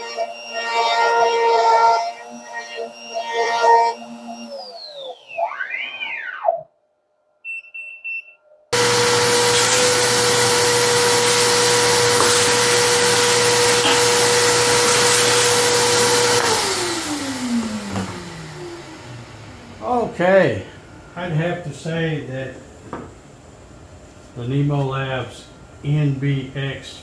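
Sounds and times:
router spindle whining: 0.0 - 6.1, 8.8 - 19.8
electronic music with beeps: 0.0 - 6.7
vacuum rushing hiss: 8.8 - 22.7.

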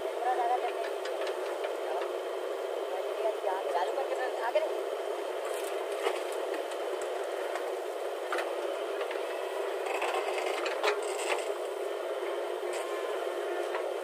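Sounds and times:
backhoe loader running: 0.0 - 3.4, 4.7 - 14.0
sharp clicks and scrapes: 9.8 - 11.6.

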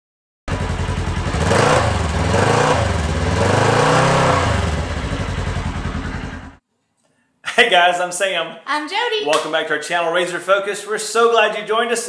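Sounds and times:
engine revving: 0.5 - 6.6.

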